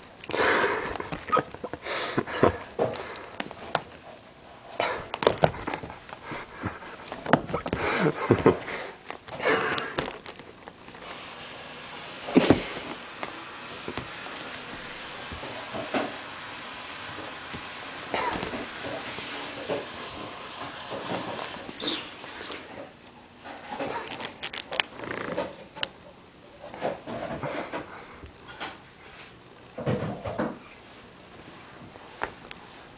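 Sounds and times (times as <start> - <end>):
cat wrestling toy on furniture: 2.4 - 22.0.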